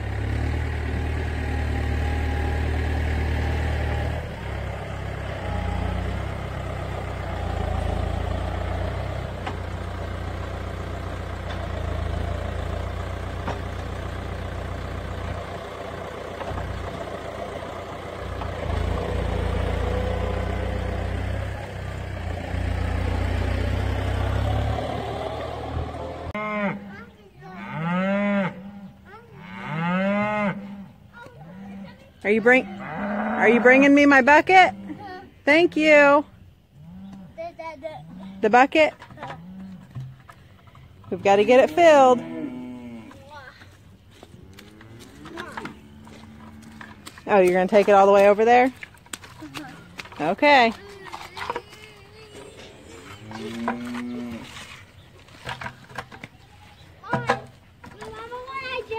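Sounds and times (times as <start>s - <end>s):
tractor engine running: 0.0s - 27.0s, 37.6s - 42.2s, 43.1s - 58.9s
cattle mooing loudly: 22.9s - 26.9s, 27.5s - 35.2s, 41.2s - 43.2s, 44.4s - 47.1s, 52.4s - 54.7s.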